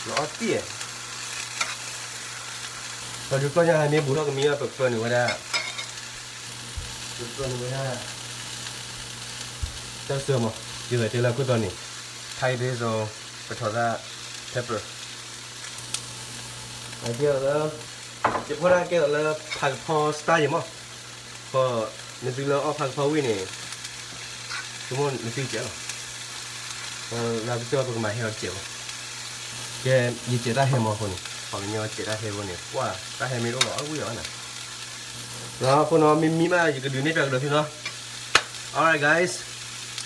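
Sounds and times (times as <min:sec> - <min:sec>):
man talking: 0:00.0 - 0:00.8, 0:03.3 - 0:05.4, 0:07.2 - 0:08.1, 0:10.1 - 0:11.8, 0:12.4 - 0:14.9, 0:17.0 - 0:20.7, 0:21.5 - 0:23.6, 0:24.9 - 0:25.8, 0:27.1 - 0:28.7, 0:29.8 - 0:34.3, 0:35.6 - 0:37.8, 0:38.7 - 0:39.5
food sizzling in a frying pan: 0:00.0 - 0:40.0.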